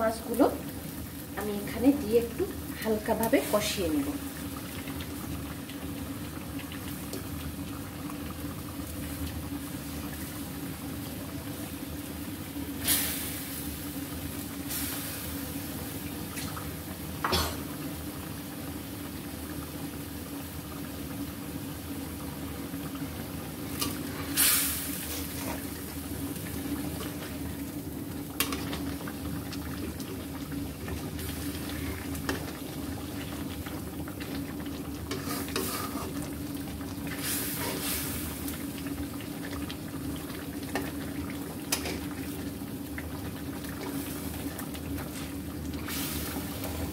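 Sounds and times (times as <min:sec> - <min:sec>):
paste bubbling and sizzling: 0:00.0 - 0:46.9.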